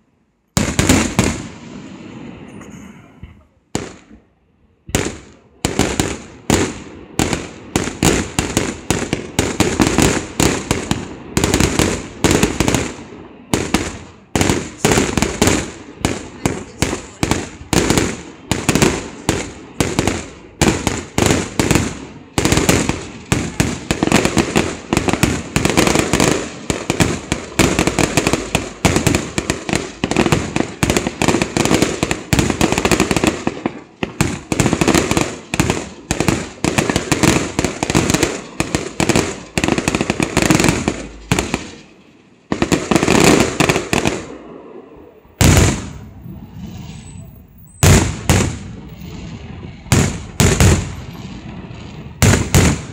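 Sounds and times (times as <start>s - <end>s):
fireworks bursting: 0.0s - 52.9s
heavy firework bang: 45.4s - 52.9s.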